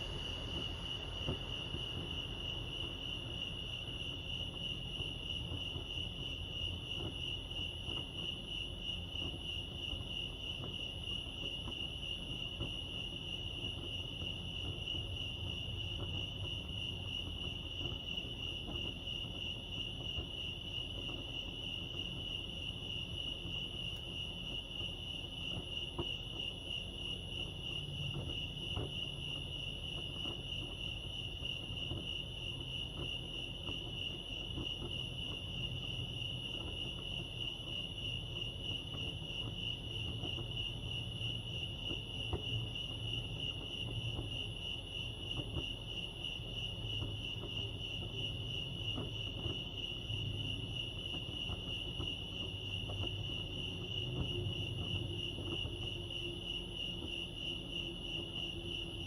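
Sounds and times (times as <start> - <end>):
faint low rumble: 0.0 - 5.6
crickets chirping: 0.0 - 59.0.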